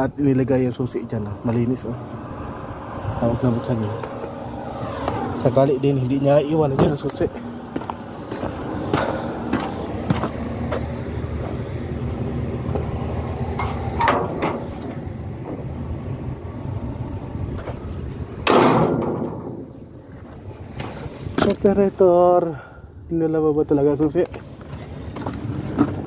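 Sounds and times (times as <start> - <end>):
taps on steel panels: 13.6 - 15.0, 18.4 - 19.7.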